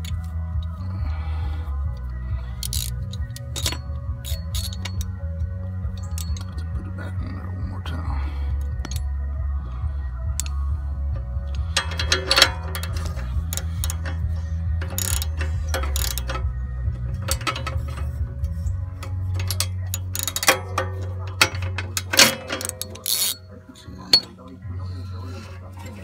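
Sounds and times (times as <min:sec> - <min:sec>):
steady low rumble: 0:00.0 - 0:26.0
socket wrench ratchet clicking: 0:01.9 - 0:05.2, 0:05.9 - 0:06.7, 0:08.6 - 0:09.1, 0:10.4 - 0:10.6, 0:11.5 - 0:23.4
sharp metal clinks: 0:02.6 - 0:05.2, 0:05.9 - 0:06.7.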